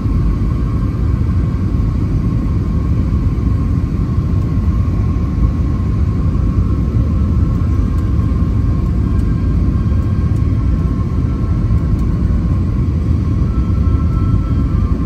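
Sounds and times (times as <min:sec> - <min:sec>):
airliner cabin rumble: 0:00.0 - 0:15.0
faint steady whine: 0:00.0 - 0:15.0
higher whine: 0:04.4 - 0:15.0.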